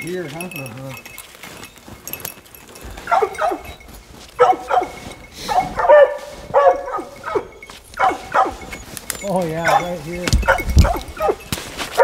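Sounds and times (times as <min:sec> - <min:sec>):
hounds barking: 0:03.0 - 0:12.0.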